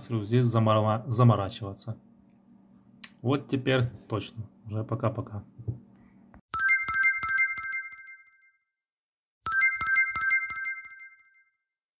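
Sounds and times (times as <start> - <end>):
bright bell-like jingle: 6.6 - 8.6, 9.5 - 11.7.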